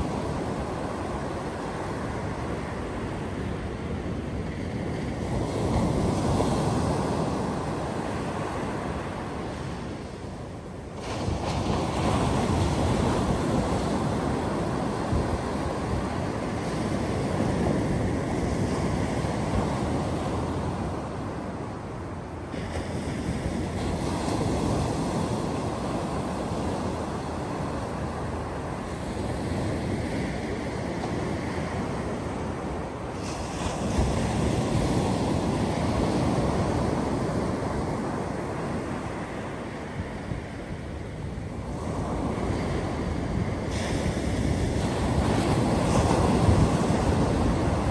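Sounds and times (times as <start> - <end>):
ocean surf breaking on beach: 0.0 - 47.9.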